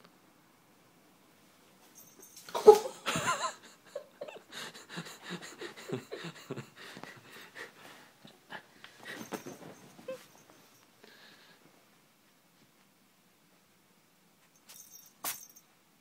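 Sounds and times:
person wheezing laughter: 2.5s - 7.6s.

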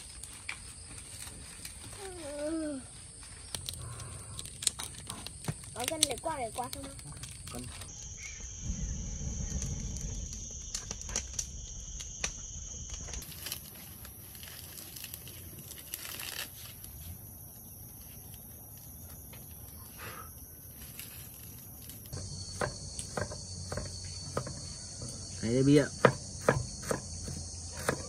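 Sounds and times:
sticks crackling in wood stove: 0.0s - 2.4s, 3.4s - 8.0s, 9.6s - 17.0s, 20.8s - 28.0s
high-pitched insect drone: 5.8s - 13.8s, 19.1s - 28.0s
knife chopping on wooden board: 25.8s - 28.0s.

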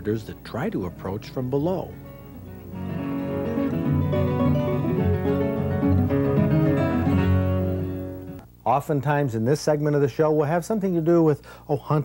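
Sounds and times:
plucked guitar music: 0.0s - 8.4s.

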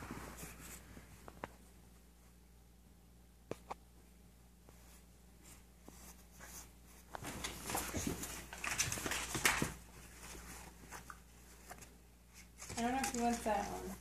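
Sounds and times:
dog rustling with plush toy: 0.0s - 1.3s, 4.7s - 14.0s.

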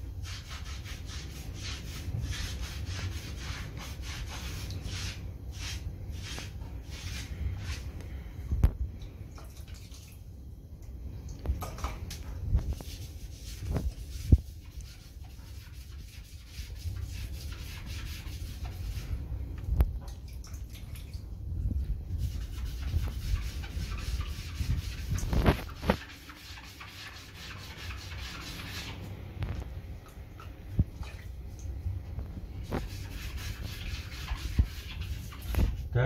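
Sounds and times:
sponge rubbing over tiles: 0.0s - 8.0s, 12.6s - 19.3s, 22.2s - 29.0s, 32.6s - 35.8s.

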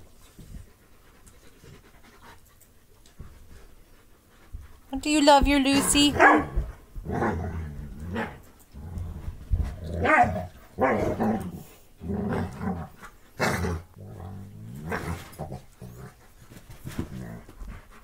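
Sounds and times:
dogs growling and barking: 6.1s - 17.8s.

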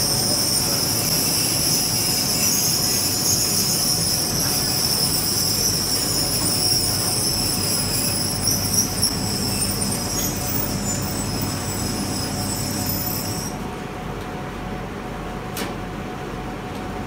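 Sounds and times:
laser cutting machine hiss and whine: 0.0s - 13.6s.

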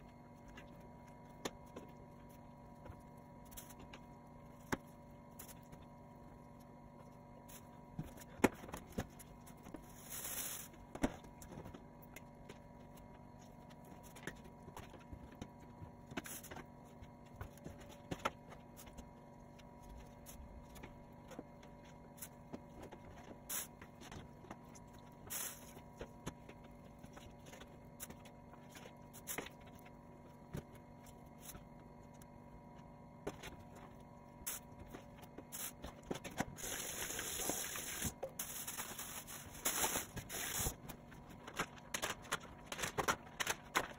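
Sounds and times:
faint steady hum: 0.0s - 43.9s.

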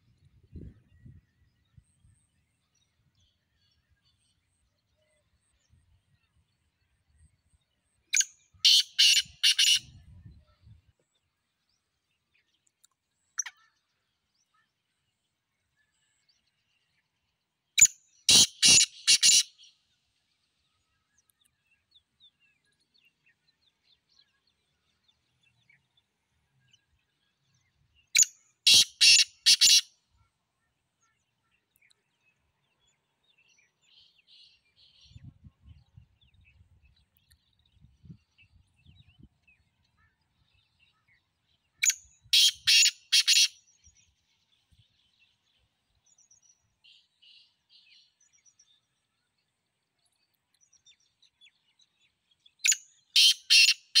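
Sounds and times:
francolin calling: 8.6s - 9.8s, 28.2s - 29.8s, 53.2s - 54.0s.

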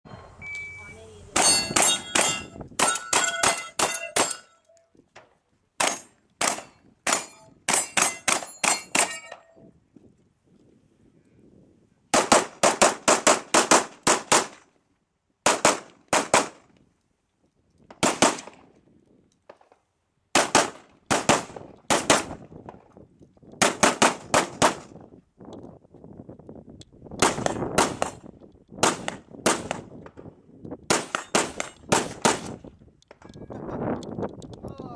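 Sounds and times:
rifle shots: 5.8s - 9.2s, 12.1s - 14.6s, 15.4s - 16.6s, 18.0s - 18.6s, 20.4s - 22.4s, 23.6s - 24.9s, 27.2s - 28.2s, 28.8s - 29.9s, 30.9s - 32.6s.

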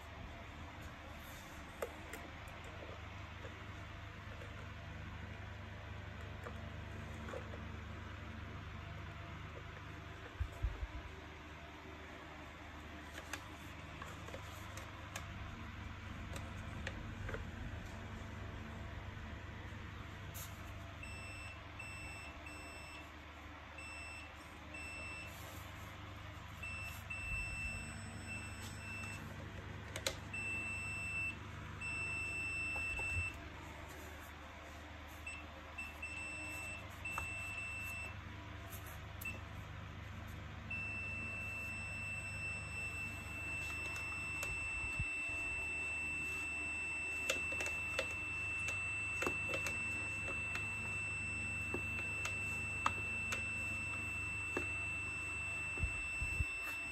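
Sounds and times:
multimeter continuity beep: 20.5s - 23.1s, 23.8s - 25.6s, 26.5s - 33.4s, 35.2s - 38.2s, 40.7s - 56.9s.

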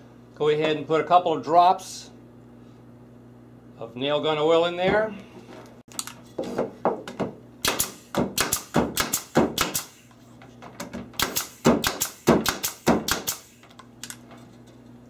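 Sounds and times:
pneumatic nailer firing into wood: 7.6s - 10.1s, 11.2s - 13.8s.

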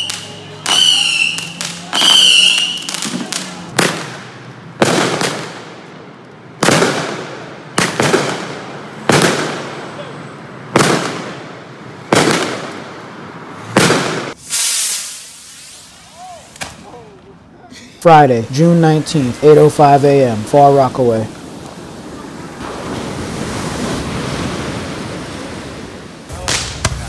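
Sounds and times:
fireworks bangs echoing: 0.0s - 15.8s, 26.3s - 27.0s
firework hissing spray: 14.0s - 16.9s.

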